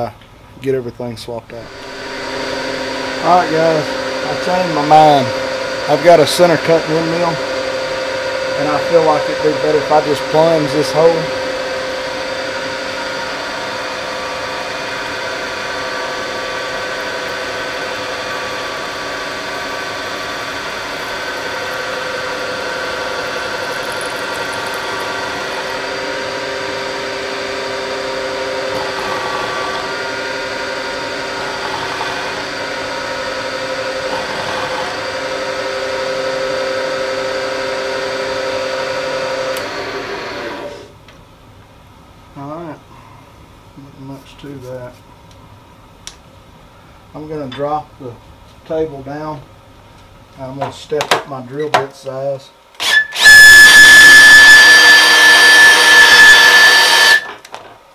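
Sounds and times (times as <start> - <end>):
milling machine hum and whine: 1.6 - 41.0, 52.8 - 57.4.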